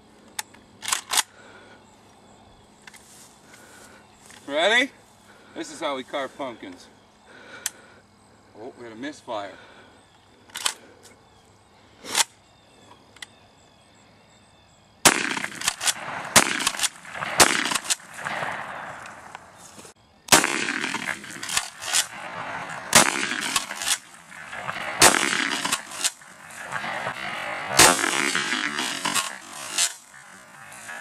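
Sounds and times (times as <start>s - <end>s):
shotgun shot: 15.0s - 19.3s, 20.3s - 31.0s
repeated bangs and cracks: 15.1s - 19.4s, 20.3s - 31.0s.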